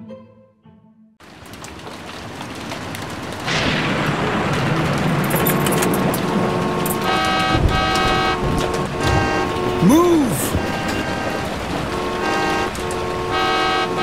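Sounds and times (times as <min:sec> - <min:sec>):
heavy rain: 0:01.2 - 0:14.0
thunderclap: 0:01.2 - 0:14.0
car horns: 0:05.8 - 0:14.0.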